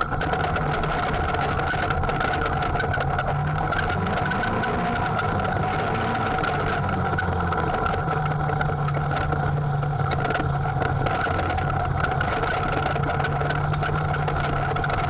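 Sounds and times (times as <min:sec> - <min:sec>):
utility vehicle engine drone: 0:00.0 - 0:15.0
light clicks and rattles: 0:06.2 - 0:15.0.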